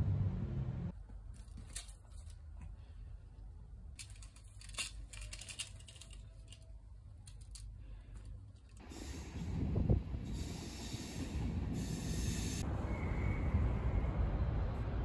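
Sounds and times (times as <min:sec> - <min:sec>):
small objects clicking and rustling: 0:01.3 - 0:02.4, 0:03.9 - 0:08.8.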